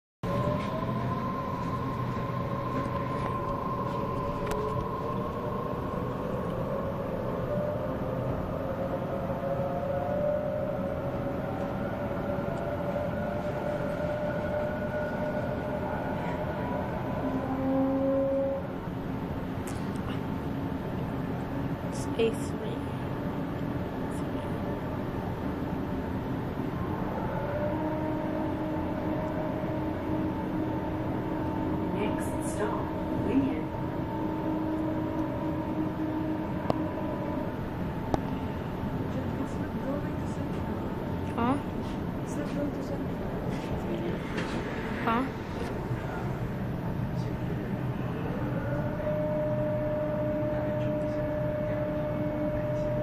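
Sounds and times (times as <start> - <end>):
whining tones: 0.2 - 19.4, 24.6 - 41.7
train equipment hum and rushing: 0.2 - 53.0.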